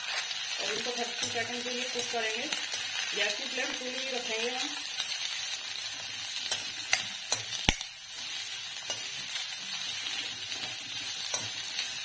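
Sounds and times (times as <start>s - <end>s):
vegetables sizzling in a hot pan: 0.0s - 12.0s
steel spatula clinking against pan: 6.4s - 7.8s, 8.8s - 9.2s.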